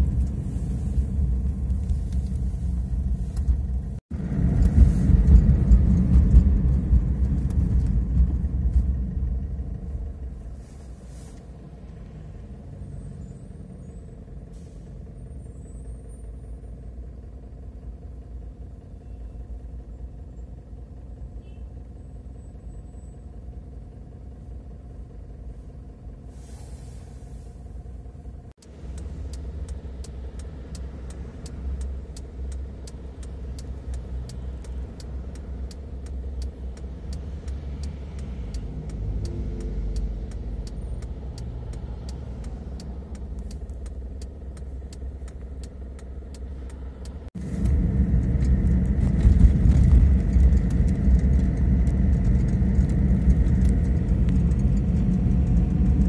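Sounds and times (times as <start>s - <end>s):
car engine and road rumble: 0.0s - 56.0s
quick regular ticking: 28.6s - 47.3s.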